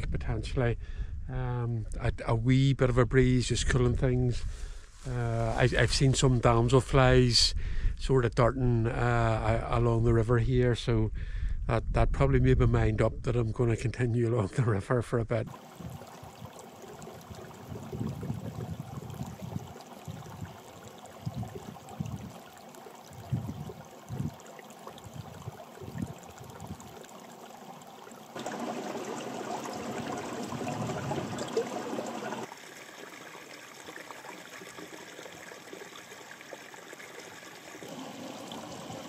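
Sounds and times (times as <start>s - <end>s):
wind rumble on microphone: 6.9s - 13.6s, 15.7s - 22.4s, 23.1s - 24.4s, 25.0s - 26.9s
stream trickling over rocks: 15.5s - 39.0s.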